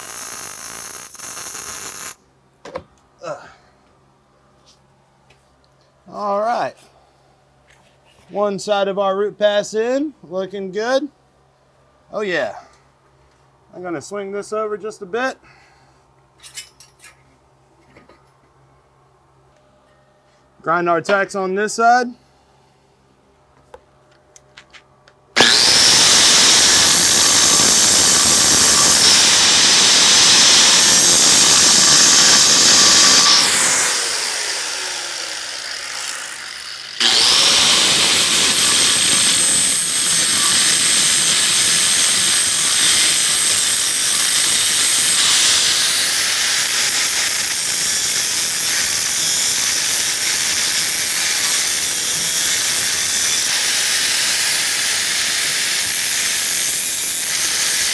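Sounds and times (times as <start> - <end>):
angle grinder grinding metal: 0.0 - 2.2, 25.4 - 57.9
grinder winding down whine: 0.0 - 2.2, 25.4 - 57.9.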